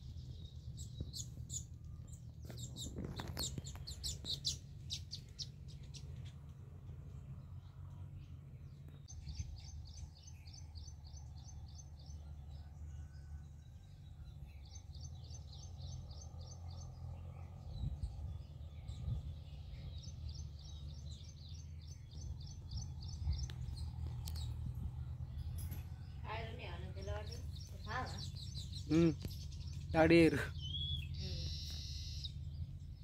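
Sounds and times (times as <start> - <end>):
steady low rumble: 0.0 - 12.4, 13.4 - 33.0
bird alarm chirps: 25.4 - 32.6.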